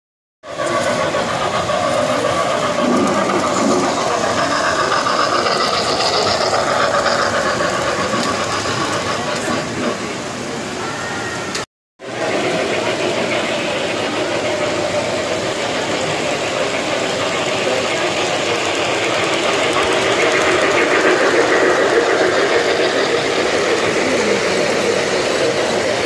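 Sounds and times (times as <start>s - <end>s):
model trains rumbling on rails: 0.4s - 26.0s.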